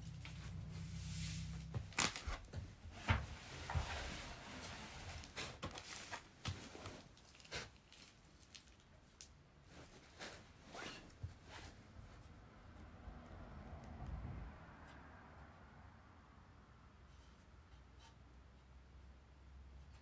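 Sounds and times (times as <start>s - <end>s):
paper ripping and crinkling: 1.8s - 2.5s.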